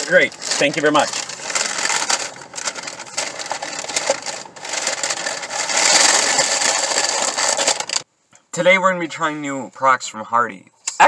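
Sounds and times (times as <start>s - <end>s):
paper bag rustling: 0.0s - 8.0s.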